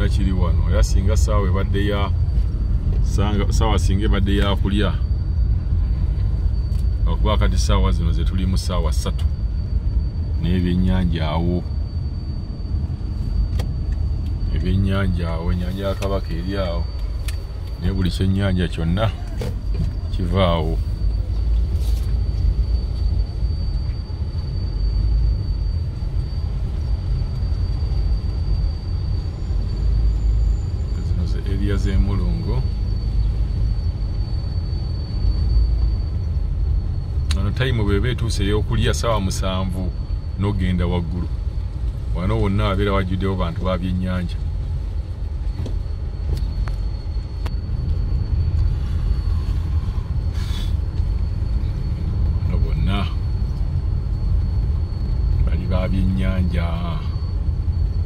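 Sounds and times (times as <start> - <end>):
car engine rumble: 0.0 - 58.0
faint high whine: 0.0 - 58.0.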